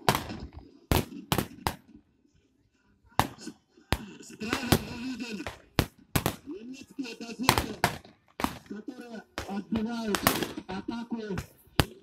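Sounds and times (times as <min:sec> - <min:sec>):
rifle shots: 0:00.0 - 0:01.8, 0:04.4 - 0:06.5, 0:09.4 - 0:10.8
voices: 0:02.3 - 0:12.0.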